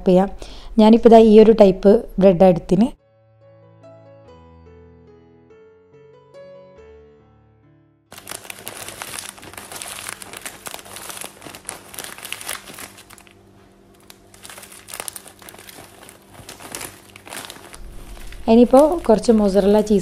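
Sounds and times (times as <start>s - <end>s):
plastic bag crinkling: 8.1s - 20.0s.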